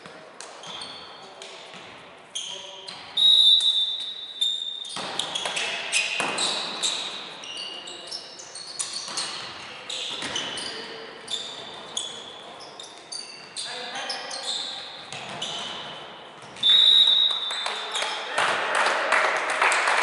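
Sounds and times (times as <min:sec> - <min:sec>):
sneakers squeaking on hardwood floor: 0:00.0 - 0:18.3
referee's whistle: 0:03.2 - 0:05.0, 0:16.6 - 0:18.2.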